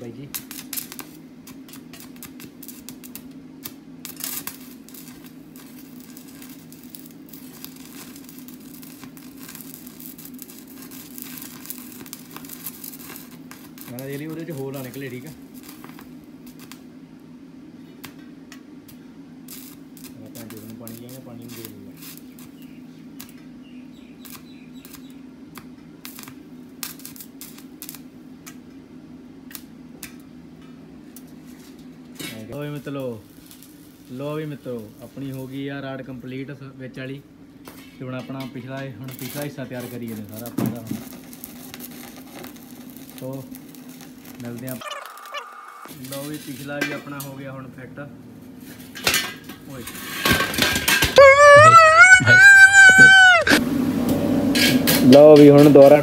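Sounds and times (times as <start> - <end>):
welding arc crackling: 0.0 - 16.9, 19.4 - 23.4, 24.1 - 28.6, 32.6 - 35.8, 39.1 - 46.8.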